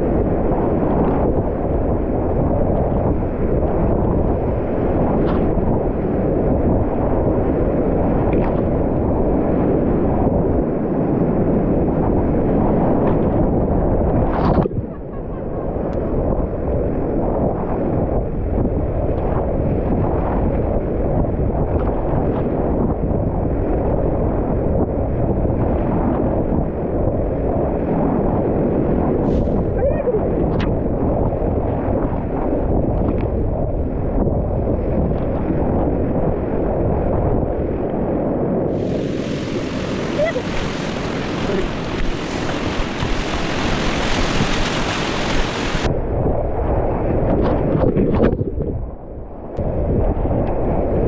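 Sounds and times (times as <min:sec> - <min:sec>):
wind buffeting microphone: 0:00.0 - 0:51.0
water splashes: 0:38.7 - 0:45.9
whitewater rushing: 0:38.7 - 0:45.9.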